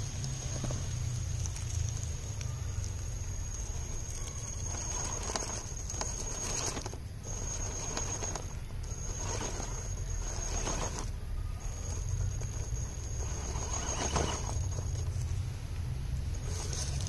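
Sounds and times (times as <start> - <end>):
electric motor whine: 2.9 - 15.4
tyres scrabbling on rock: 3.3 - 15.4, 16.3 - 17.0.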